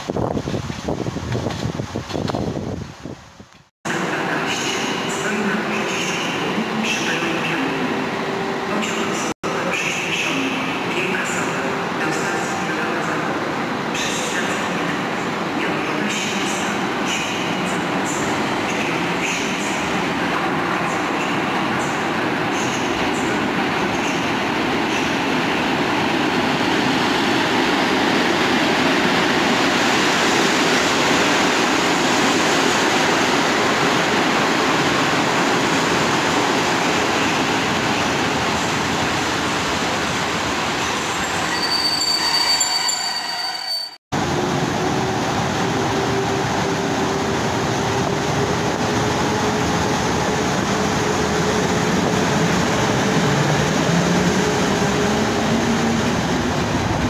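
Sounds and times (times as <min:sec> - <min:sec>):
train rolling past: 0:03.9 - 0:57.0
wheel or brake squeal: 0:41.1 - 0:44.0.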